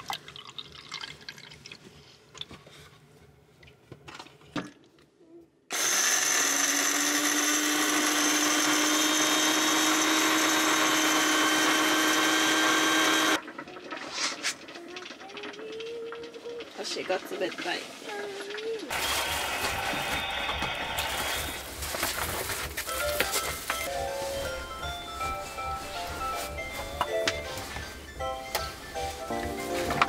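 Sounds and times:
water trickling from bottle: 0.0 - 2.5
coffee grinder whirring: 5.7 - 15.7, 16.3 - 23.9.

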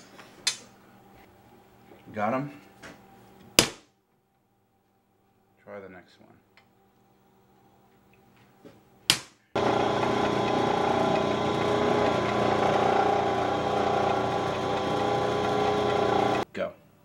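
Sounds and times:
drill press drilling metal: 9.6 - 16.4.

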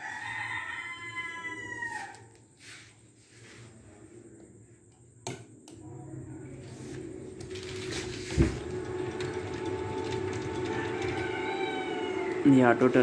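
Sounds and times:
incubator mechanical hum: 3.0 - 13.0.

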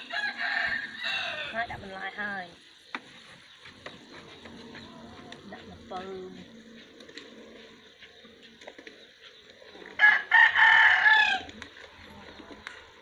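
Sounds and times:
rooster crowing: 0.0 - 1.7, 10.0 - 11.6.

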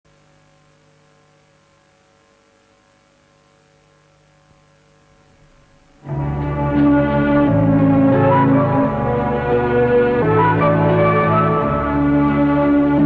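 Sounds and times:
faint steady hum: 0.1 - 13.0
music with sustained chords: 5.9 - 13.0.

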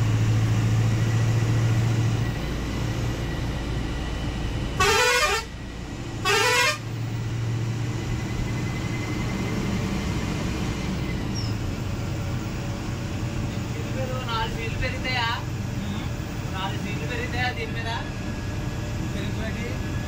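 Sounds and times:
bus engine hum: 0.0 - 20.0
road noise: 0.0 - 20.0
bus horn blasts: 4.8 - 7.0.

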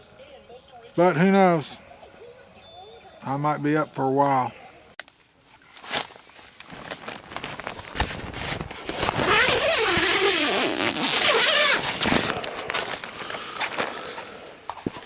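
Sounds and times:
tent zipper pulled: 5.8 - 13.9.

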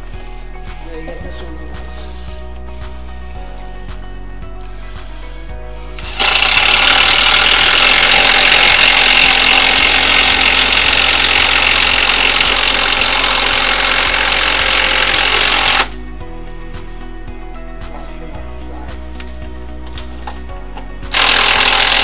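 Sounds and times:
loud machine running: 6.0 - 16.0, 21.1 - 22.0.

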